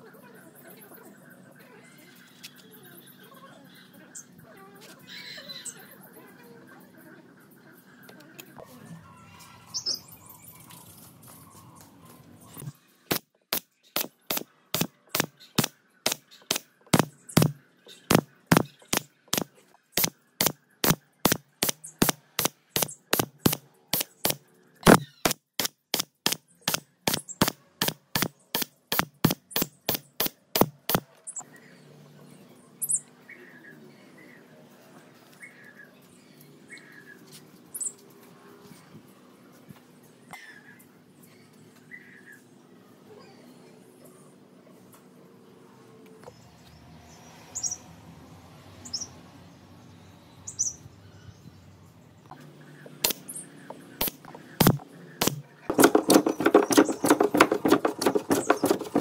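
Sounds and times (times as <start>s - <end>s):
nail gun firing into wood: 13.1s - 31.0s, 54.0s - 59.0s.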